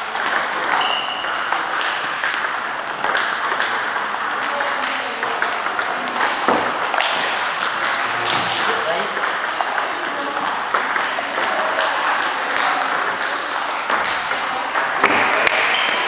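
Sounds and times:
table tennis ball clicking: 0:00.2 - 0:16.0.

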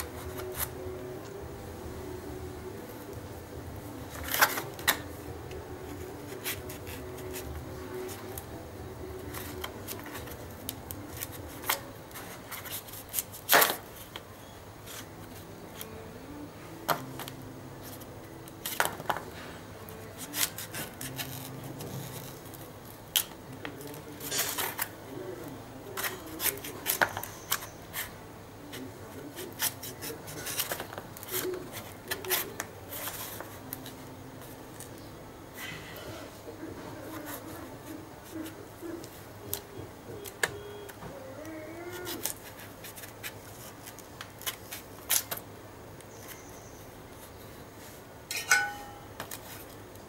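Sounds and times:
knife cutting and scraping fruit: 0:00.0 - 0:00.9, 0:05.8 - 0:08.5, 0:09.1 - 0:16.0, 0:17.8 - 0:25.0, 0:25.9 - 0:34.9, 0:41.9 - 0:45.4.

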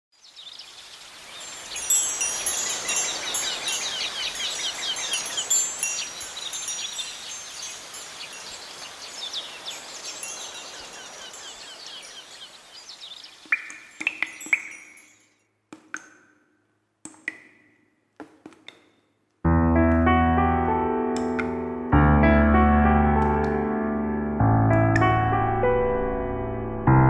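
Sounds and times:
chimes tinkling: 0:01.4 - 0:12.5, 0:13.8 - 0:15.5.

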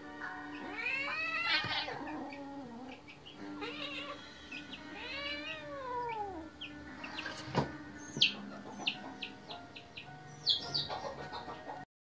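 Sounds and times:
cats yowling in a fight: 0:00.6 - 0:06.5.

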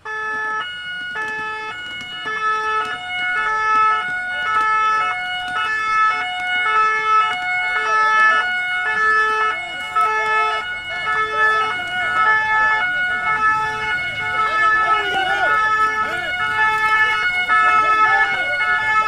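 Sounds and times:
two-tone emergency sirens: 0:00.0 - 0:19.0.

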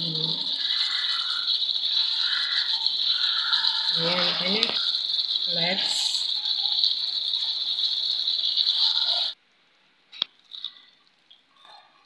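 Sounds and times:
chicken sizzling in a pan: 0:00.0 - 0:09.4
spatula stirring in pan: 0:00.0 - 0:09.4.

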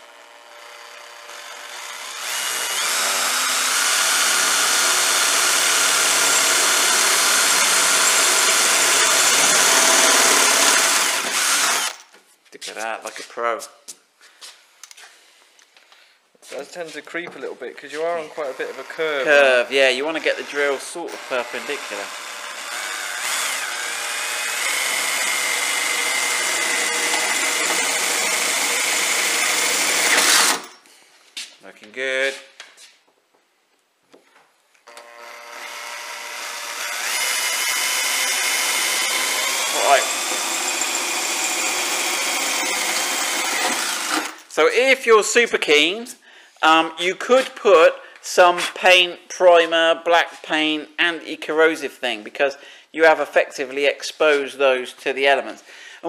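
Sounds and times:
cordless drill boring through steel: 0:00.0 - 0:12.0, 0:18.2 - 0:30.8, 0:34.9 - 0:44.5.

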